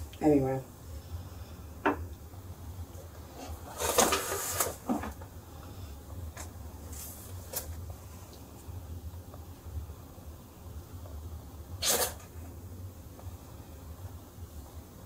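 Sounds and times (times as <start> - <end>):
low steady hum: 0.0 - 15.0
rustling scrape: 3.3 - 5.2, 6.8 - 7.8.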